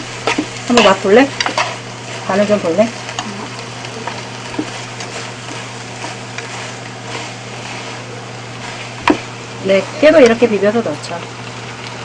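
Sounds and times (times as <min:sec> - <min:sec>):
food sizzling in a frying pan: 0:00.0 - 0:12.0
steady low hum: 0:00.0 - 0:12.0
utensils clicking against pan: 0:00.2 - 0:01.8.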